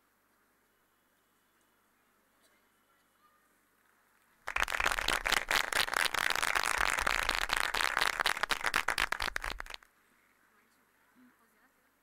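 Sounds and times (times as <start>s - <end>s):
audience applauding: 4.5s - 9.8s.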